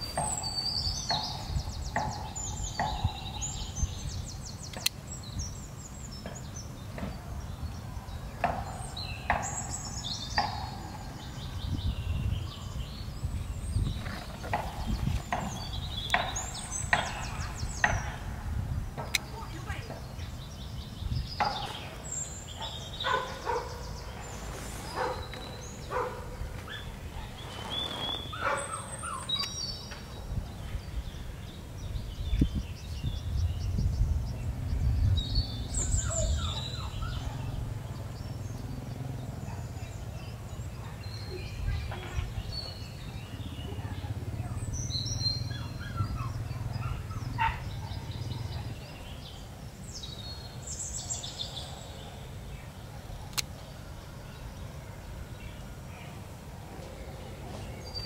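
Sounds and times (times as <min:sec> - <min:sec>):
birds chirping and calling: 0:00.0 - 0:58.0
leaves and stems rustling: 0:21.6 - 0:29.5.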